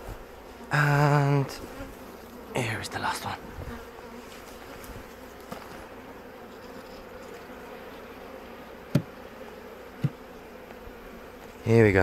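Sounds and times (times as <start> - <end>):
honey bees buzzing: 0.0 - 12.0
sharp knocks: 8.9 - 9.1.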